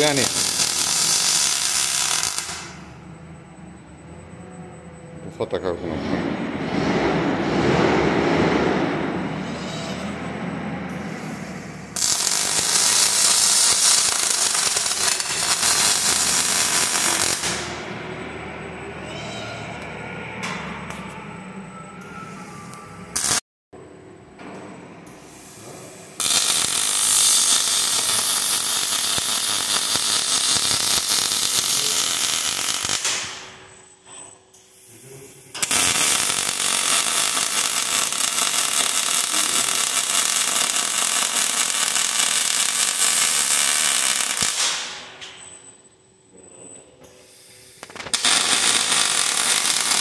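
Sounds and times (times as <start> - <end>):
welding arc crackling buzz: 0.0 - 2.9, 11.1 - 18.0, 23.1 - 23.4, 25.4 - 33.6, 35.5 - 45.2, 47.4 - 50.0.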